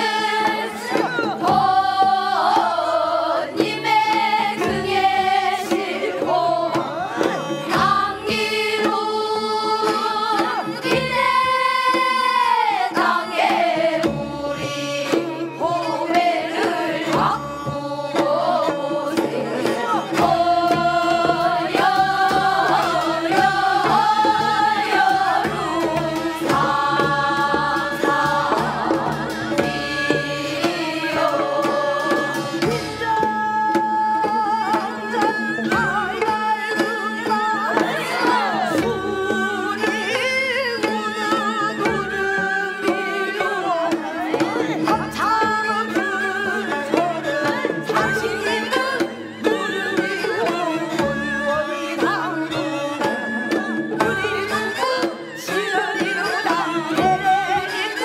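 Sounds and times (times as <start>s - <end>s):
drum accompaniment: 0.0s - 58.0s.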